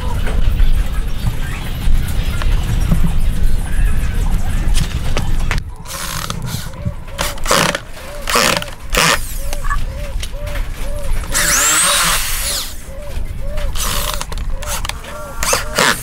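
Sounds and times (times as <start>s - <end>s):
electric drill boring into wood: 11.4s - 12.6s.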